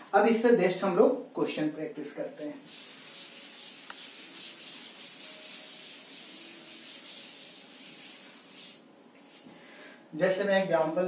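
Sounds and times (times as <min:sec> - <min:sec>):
chalkboard being wiped: 0:02.2 - 0:09.5, 0:10.4 - 0:11.0.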